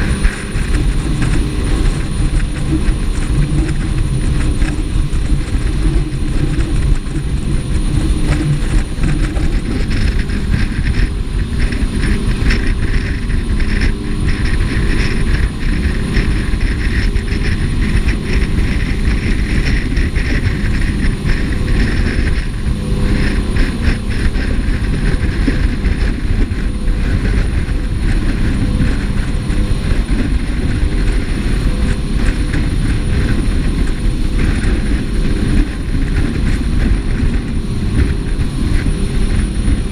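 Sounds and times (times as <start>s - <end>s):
jet boat engine and water rush: 0.0s - 39.9s.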